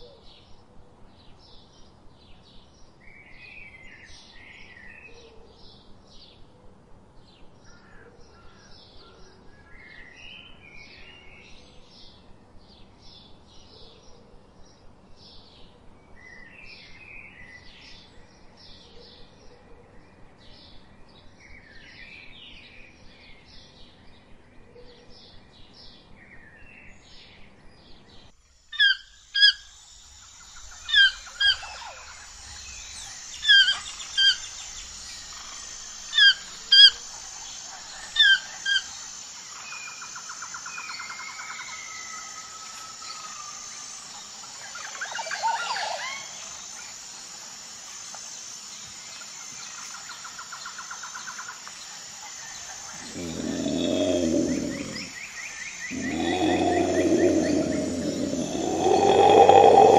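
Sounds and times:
soft birdsong: 0.0s - 42.0s, 48.1s - 59.9s
toucan calling: 36.1s - 37.0s
rapid bird chirps: 52.4s - 59.9s
low tiger growl: 52.9s - 59.9s
steady high drone: 55.9s - 59.9s.

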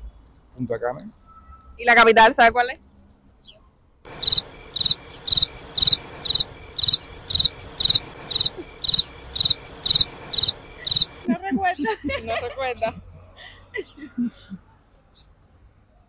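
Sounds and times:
cricket chirping: 2.8s - 11.3s.

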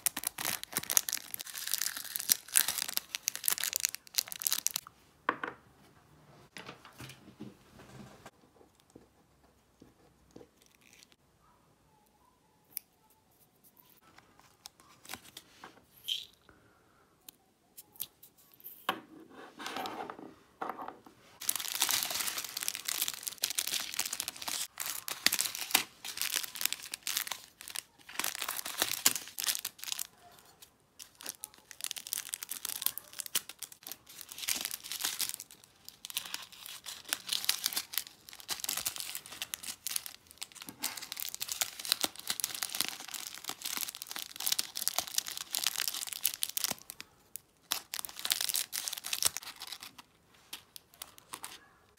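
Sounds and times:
plastic bags crinkling: 0.0s - 4.8s, 21.4s - 30.2s, 31.0s - 51.6s.

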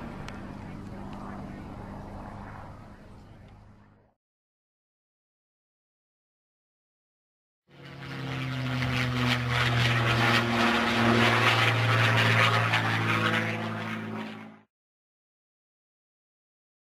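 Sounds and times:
propeller aircraft engine droning: 0.0s - 4.2s, 7.7s - 14.7s.

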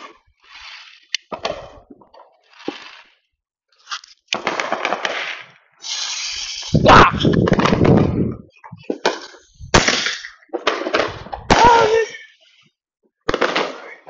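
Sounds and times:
firework launch: 0.0s - 12.4s, 13.2s - 14.0s
firework sharp bangs: 4.3s - 6.1s, 8.8s - 12.2s, 13.2s - 14.0s.

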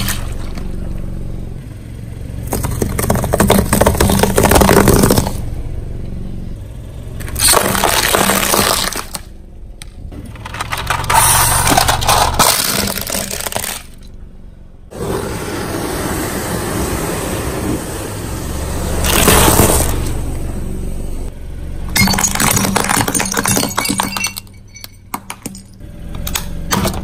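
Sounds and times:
tyre crushing plastic containers: 2.5s - 5.4s, 7.3s - 9.2s, 10.2s - 14.0s, 22.0s - 24.4s.

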